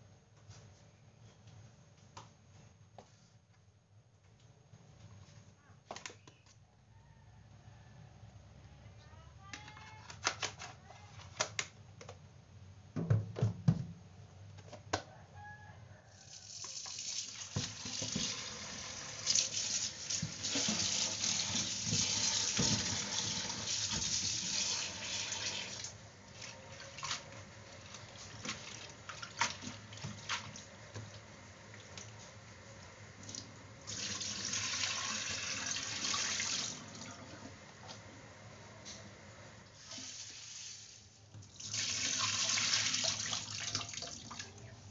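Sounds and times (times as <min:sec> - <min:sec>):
water splashing in sink: 0:16.4 - 0:32.1, 0:33.2 - 0:37.4, 0:41.4 - 0:44.7
tap running into sink bowl: 0:16.6 - 0:18.5.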